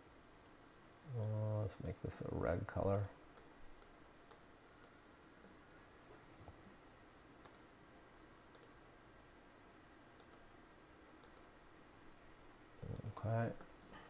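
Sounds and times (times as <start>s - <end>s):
computer mouse clicks: 2.9s - 5.0s, 7.4s - 7.7s, 8.5s - 8.8s, 10.2s - 10.5s, 11.2s - 11.5s, 12.9s - 13.3s.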